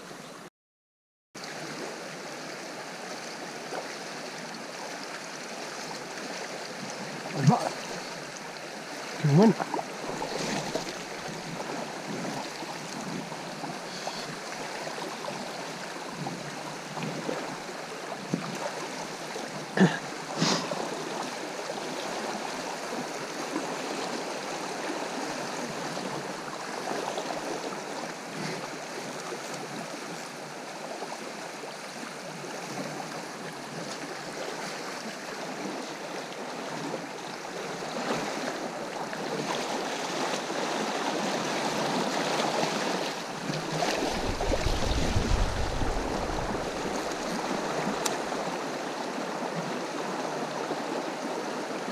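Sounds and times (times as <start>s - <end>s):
river rushing over riffles: 4.6s - 29.3s, 39.7s - 51.9s.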